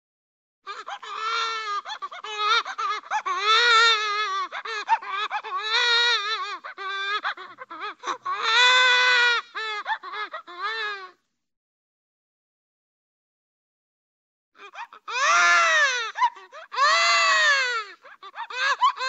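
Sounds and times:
cartoon baby crying: 0:00.7 - 0:11.1, 0:14.6 - 0:19.0.

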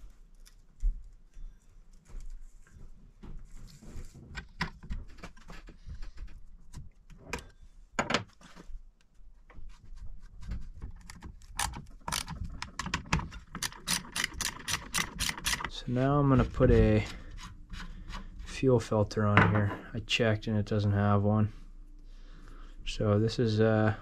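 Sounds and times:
wrench tightening nuts clicking: 0:11.6 - 0:15.7.

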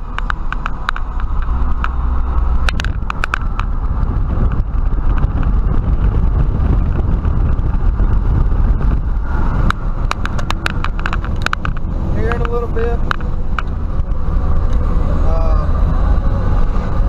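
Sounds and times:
road and wind noise: 0:00.0 - 0:17.0
tyre and engine rumble: 0:00.0 - 0:17.0.

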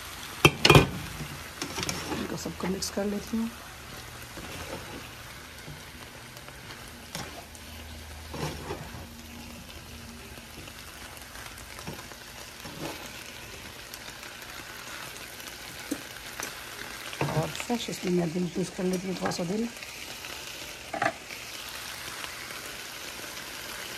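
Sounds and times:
vegetables sizzling in a frying pan: 0:00.0 - 0:23.9
spatula scraping a pan: 0:00.5 - 0:02.8, 0:03.9 - 0:05.9, 0:06.6 - 0:09.6, 0:11.7 - 0:13.3.

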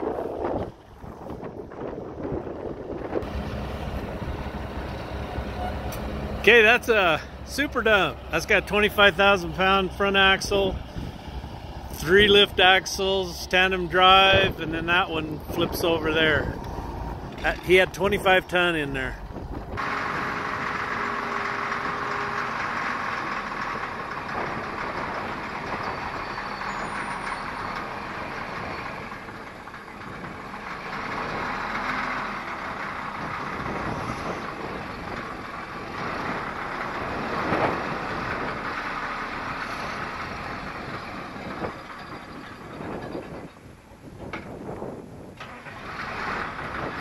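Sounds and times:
motor grader running: 0:00.0 - 0:47.0.

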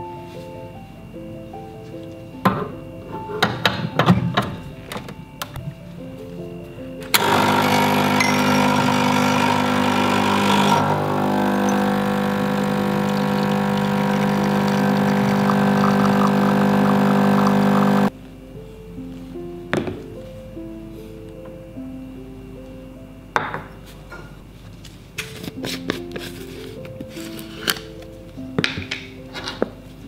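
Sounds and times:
espresso machine pump humming: 0:07.1 - 0:18.1.

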